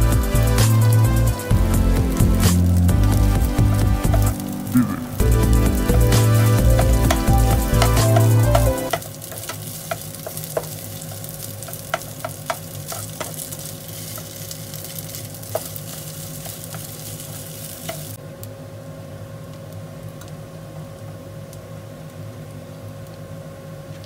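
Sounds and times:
music with heavy bass: 0:00.0 - 0:08.9
rice sizzling in oil: 0:00.0 - 0:18.2
spatula scraping and tapping pan: 0:06.6 - 0:14.4, 0:15.4 - 0:16.9.

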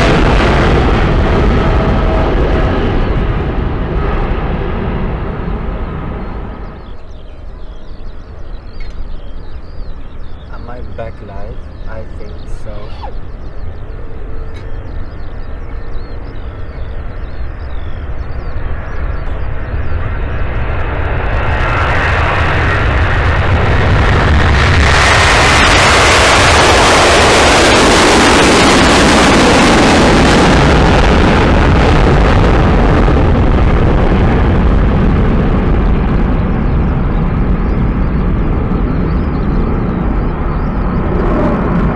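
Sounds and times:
jet airliner taking off: 0:00.0 - 0:41.9.

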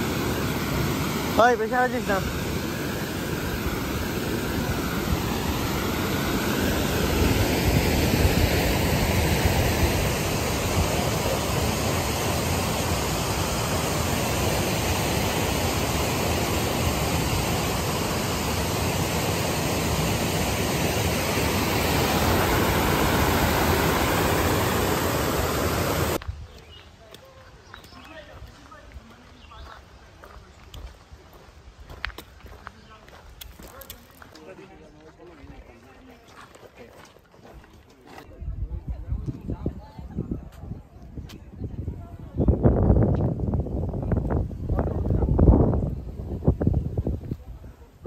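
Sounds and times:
waterfall rushing: 0:00.0 - 0:26.2.

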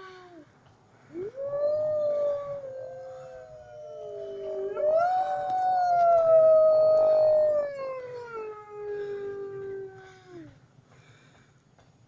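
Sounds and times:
wolves howling: 0:01.1 - 0:10.0.

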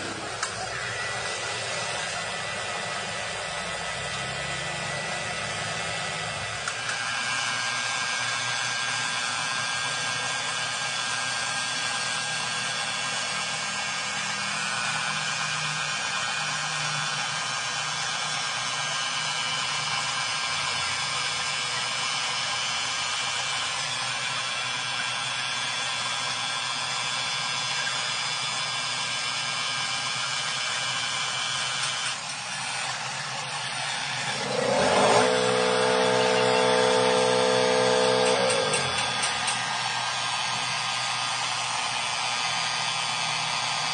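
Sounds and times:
rising whine: 0:00.0 - 0:08.8, 0:32.0 - 0:43.9
angle grinder polishing metal: 0:31.1 - 0:43.0.

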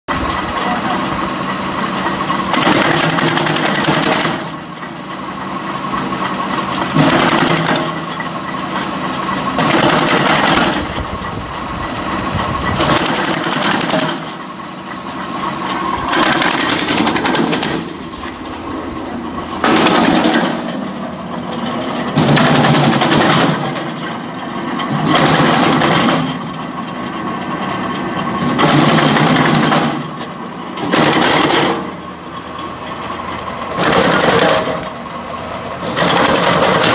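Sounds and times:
tractor engine running: 0:00.1 - 0:36.9
wood chopper cracking branches: 0:02.5 - 0:04.6, 0:06.9 - 0:08.9, 0:09.5 - 0:11.1, 0:12.7 - 0:14.5, 0:15.6 - 0:26.6, 0:28.4 - 0:32.7, 0:33.3 - 0:35.0, 0:35.8 - 0:36.9.

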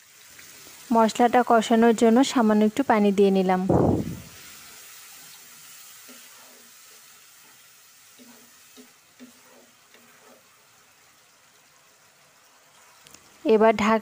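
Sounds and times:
faint steady sizzle: 0:00.0 - 0:14.0
spatula scraping a pan: 0:04.8 - 0:10.9.

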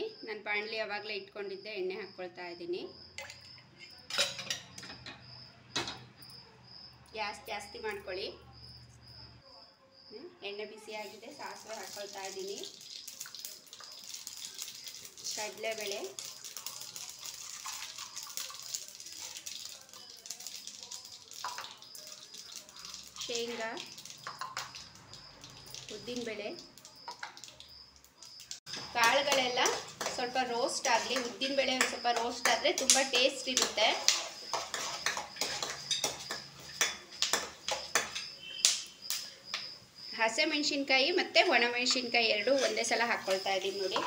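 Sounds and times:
seeds sizzling in hot oil: 0:10.8 - 0:44.0
spatula scraping a wok: 0:24.0 - 0:24.8, 0:28.7 - 0:38.5, 0:41.9 - 0:44.0.

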